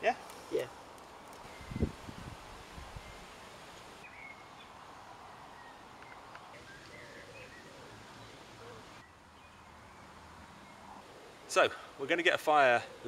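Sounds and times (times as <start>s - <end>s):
faint background hiss: 0.0s - 10.0s, 10.8s - 13.0s
faint bird chirps: 1.4s - 2.0s.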